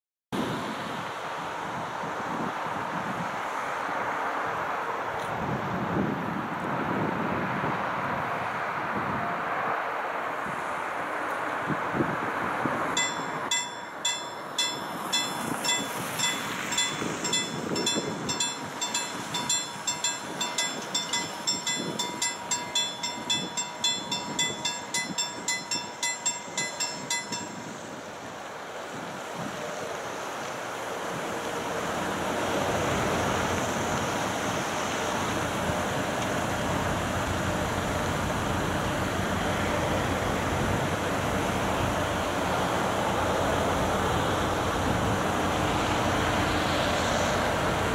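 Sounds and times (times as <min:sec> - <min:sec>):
train low rumble: 0:00.4 - 0:47.9
level-crossing warning bell ringing: 0:13.0 - 0:27.9.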